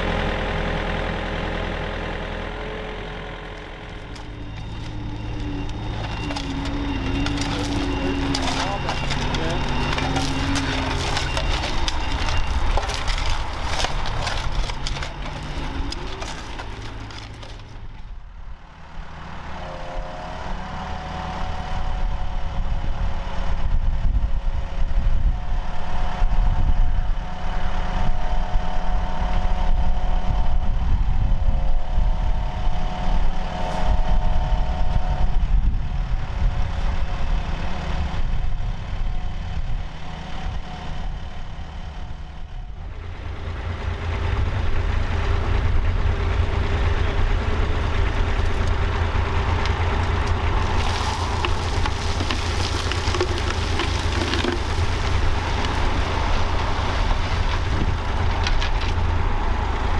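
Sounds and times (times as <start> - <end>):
excavator diesel engine: 0.0 - 59.9
spades scraping through soil: 5.8 - 17.7, 50.6 - 56.1.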